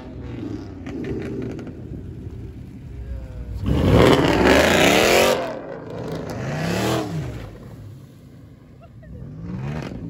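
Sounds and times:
car engine revving hard: 3.6s - 7.6s.

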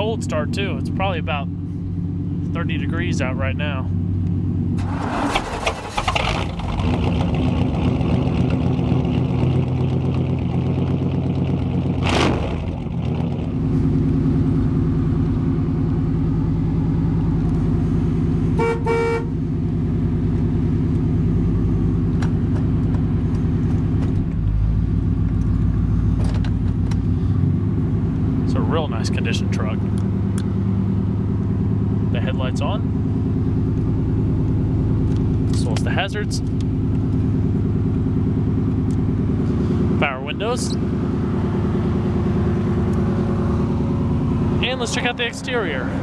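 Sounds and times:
truck engine idling: 12.8s - 46.0s.

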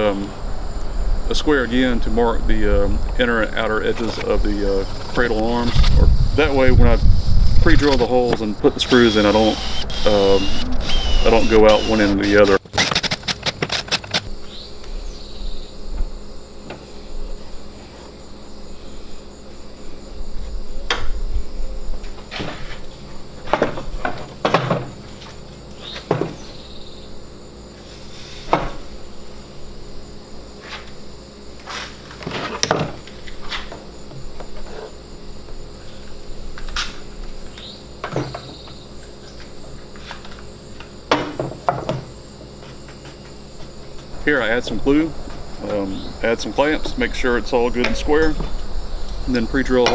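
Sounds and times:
insect chirring: 3.9s - 21.8s, 33.0s - 40.0s, 48.6s - 49.8s.

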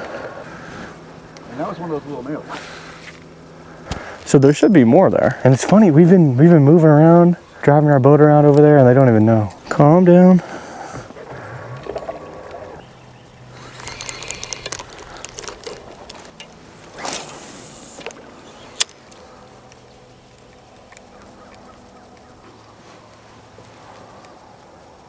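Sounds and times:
faint low hum: 0.0s - 25.0s
fishing reel clicks and rattles: 4.3s - 22.4s.

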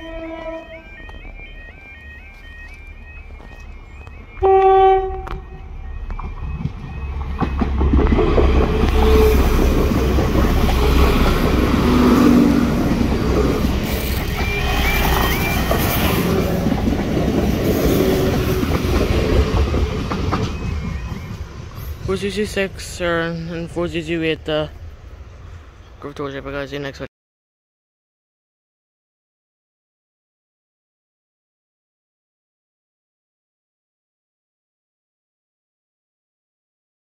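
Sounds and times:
train horn blast: 0.0s - 1.0s, 4.4s - 5.6s, 8.6s - 12.6s, 14.2s - 16.5s
train passing rumble: 0.0s - 27.1s
wheels clacking over rail joints: 5.2s - 22.9s.

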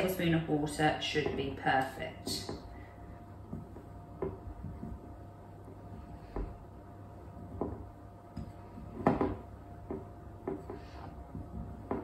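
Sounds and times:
hands pressing dough in bowl: 3.4s - 12.0s.

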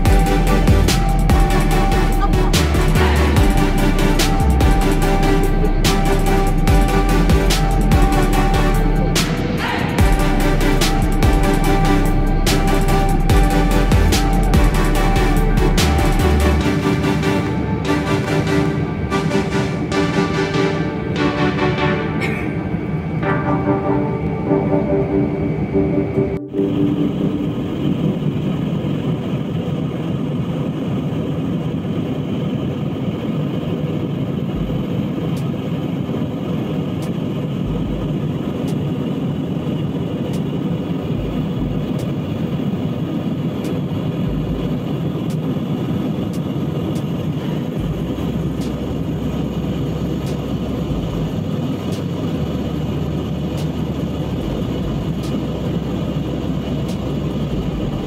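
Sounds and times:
jet engines: 0.0s - 58.0s
rushing airflow: 0.0s - 58.0s.

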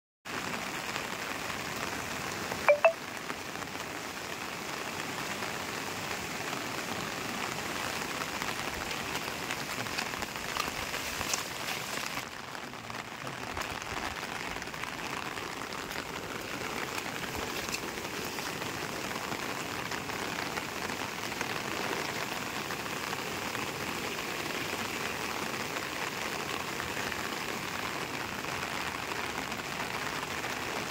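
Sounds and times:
floodwater rushing: 0.3s - 30.9s
loud beep: 2.7s - 3.0s.

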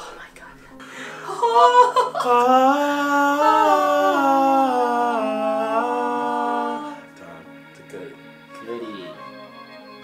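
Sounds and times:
person singing long notes: 1.3s - 7.5s.

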